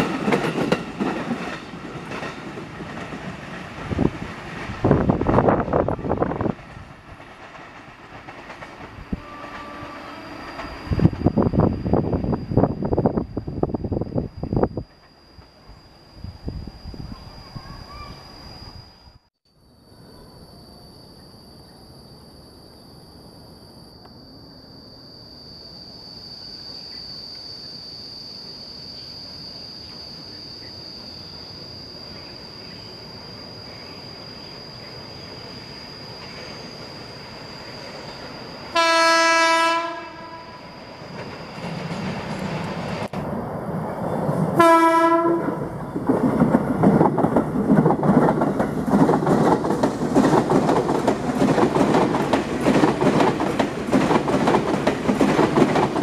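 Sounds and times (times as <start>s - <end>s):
train wheels rattling on rails: 0.0s - 15.5s, 39.9s - 56.0s
train horn blasts: 9.1s - 10.6s, 38.7s - 40.7s, 44.6s - 45.7s.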